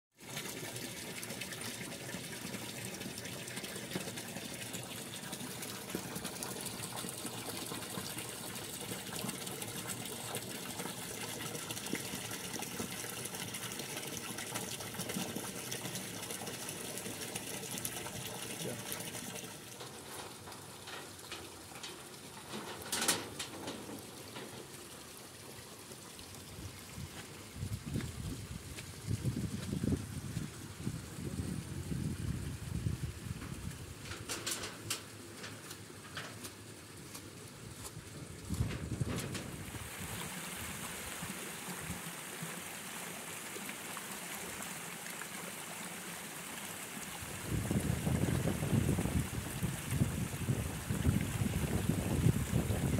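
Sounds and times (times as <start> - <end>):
water pouring into a tank: 0.2 - 52.9
wind buffeting microphone: 26.6 - 34.1, 38.2 - 40.0, 47.3 - 52.9.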